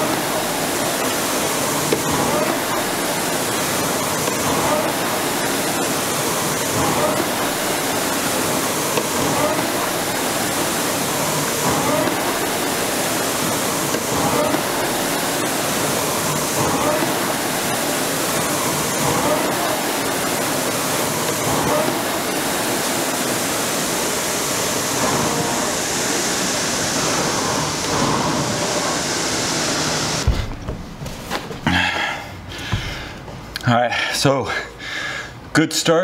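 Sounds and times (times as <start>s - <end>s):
rowing machine fan whooshing: 0.0s - 31.6s
low thump: 30.2s - 31.1s.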